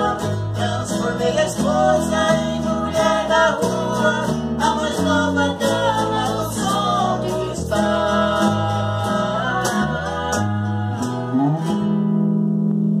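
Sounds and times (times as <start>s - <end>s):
man and girl singing: 0.0s - 11.6s
classical guitars strummed: 0.0s - 13.0s.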